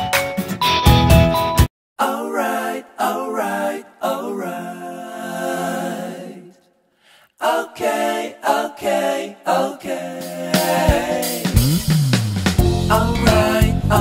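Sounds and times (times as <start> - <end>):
person singing: 2.0 - 6.5, 12.8 - 14.0.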